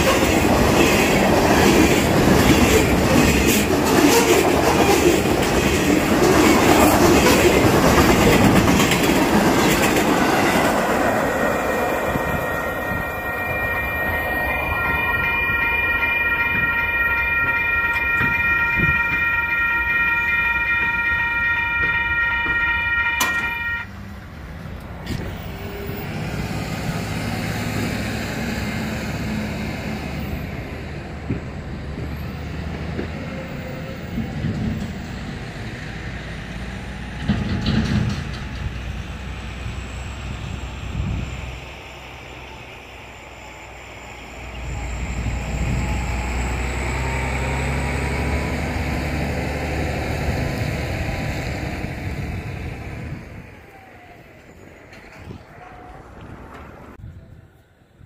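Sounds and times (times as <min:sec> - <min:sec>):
distant diesel locomotive rumble: 0:00.0 - 0:58.0.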